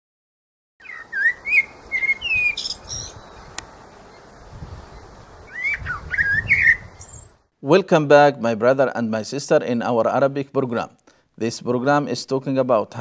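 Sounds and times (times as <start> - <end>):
bird-like chirps and whistled glides: 0.8 - 4.3, 4.9 - 7.5
steady hiss: 1.1 - 7.5.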